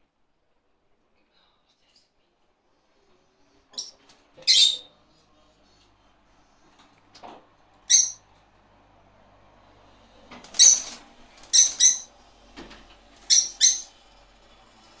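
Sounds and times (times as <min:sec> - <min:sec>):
budgerigars screeching: 0:03.8 - 0:04.9, 0:07.9 - 0:08.2, 0:10.6 - 0:12.1, 0:13.3 - 0:13.9.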